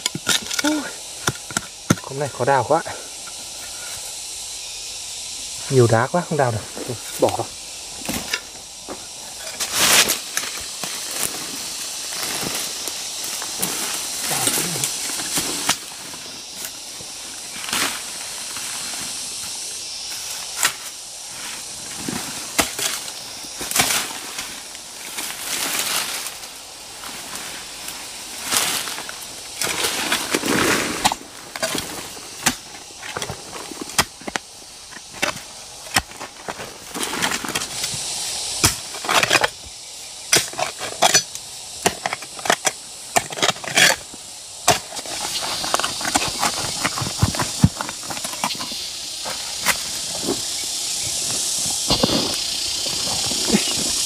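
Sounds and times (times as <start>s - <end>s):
steady high hiss: 0.0s - 54.0s
hoe chopping into soil: 38.6s - 39.6s.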